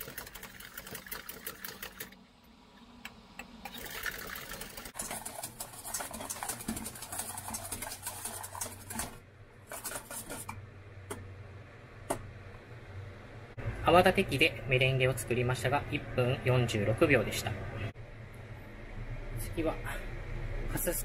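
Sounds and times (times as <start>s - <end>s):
whisk clattering in metal bowl: 3.8s - 10.5s.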